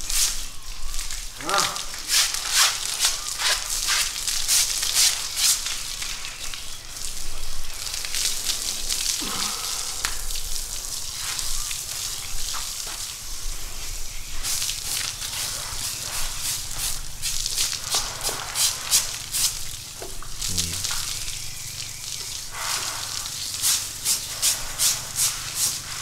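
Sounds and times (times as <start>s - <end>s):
water spray hissing: 0.0s - 26.0s
scrubbing on hide: 1.4s - 5.7s, 22.6s - 26.0s.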